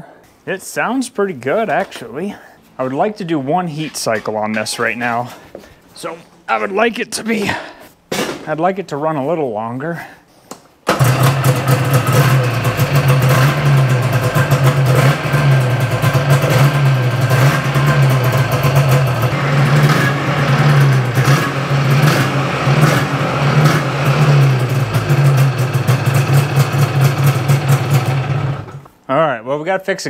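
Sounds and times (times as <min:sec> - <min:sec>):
snowmobile engine running: 0:10.9 - 0:28.8.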